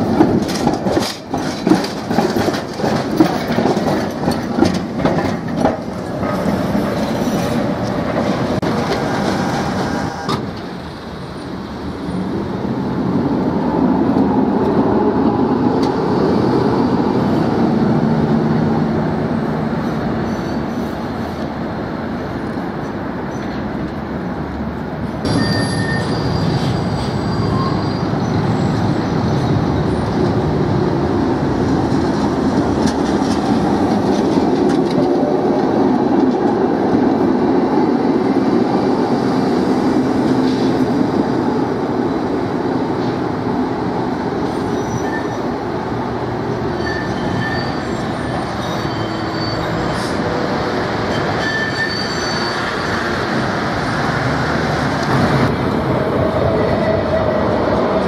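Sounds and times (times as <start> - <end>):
tram wheels rumbling on rails: 0.0 - 58.0
wheel squeals: 8.8 - 10.5, 25.2 - 30.1, 44.4 - 45.5, 46.6 - 50.3, 51.0 - 53.2.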